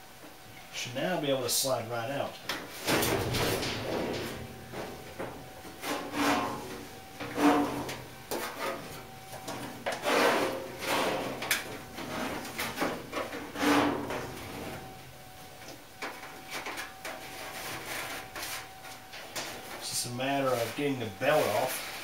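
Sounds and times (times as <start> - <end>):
dryer drum knocks: 2.8 - 5.5
metal drum scraping on metal: 2.8 - 15.0.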